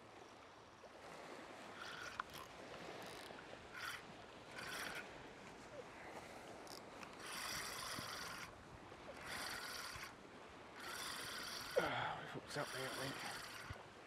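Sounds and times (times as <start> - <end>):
fishing reel rasping: 1.8 - 5.1, 6.6 - 10.2, 10.8 - 13.8.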